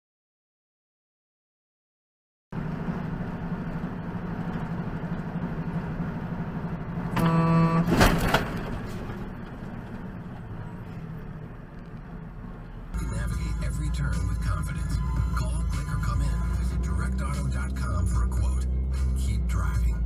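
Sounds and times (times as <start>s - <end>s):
truck engine and road drone: 2.5s - 20.0s
truck horn blast: 7.1s - 8.2s.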